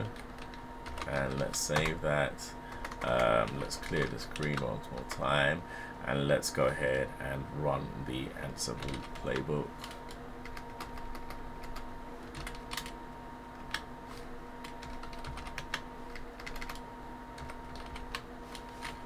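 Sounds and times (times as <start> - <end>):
keyboard keystrokes clicking: 2.8 - 5.1, 8.8 - 13.0, 14.6 - 16.8, 17.4 - 18.2.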